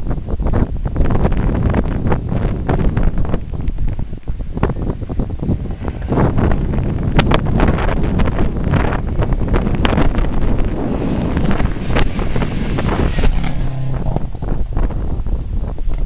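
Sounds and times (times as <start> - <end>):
wind buffeting microphone: 0.0 - 16.0
rally car engine passing: 10.6 - 14.9
tyre spray on wet road: 10.7 - 14.4.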